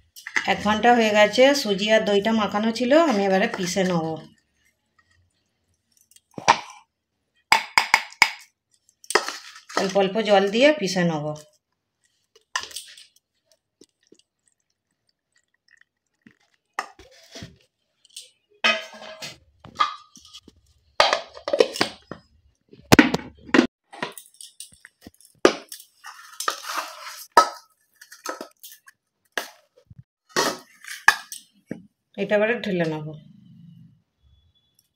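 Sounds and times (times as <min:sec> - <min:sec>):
spoon scraping steel bowls: 0:02.4 - 0:06.8, 0:08.9 - 0:10.0, 0:12.0 - 0:13.6, 0:16.3 - 0:20.6, 0:24.2 - 0:29.0.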